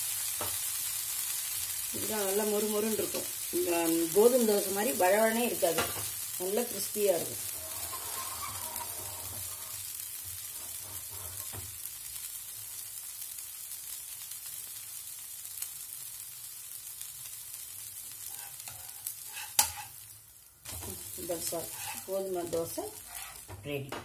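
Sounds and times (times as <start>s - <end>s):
flatbread sizzling on a griddle: 0.0s - 23.8s
steel spatula scrape-click: 18.3s - 19.9s, 21.7s - 22.1s, 23.1s - 23.4s.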